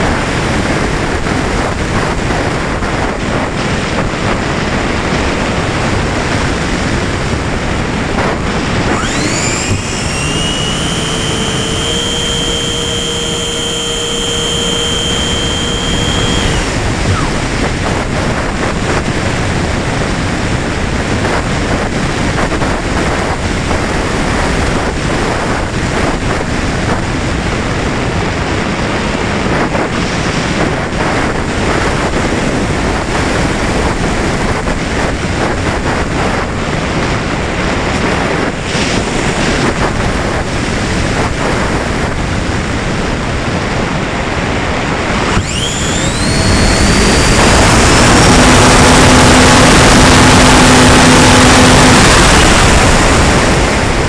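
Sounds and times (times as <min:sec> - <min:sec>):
wind noise from airflow: 0:00.0 - 0:54.0
electric motor whine: 0:08.2 - 0:19.6, 0:45.0 - 0:54.0.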